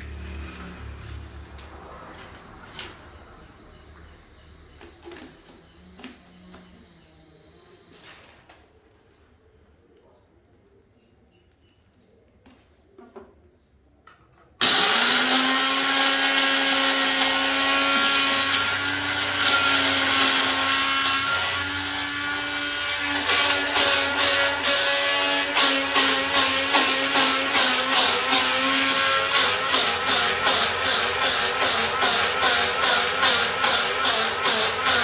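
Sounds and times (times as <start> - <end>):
blender grinding: 0.0 - 1.7, 14.6 - 35.0.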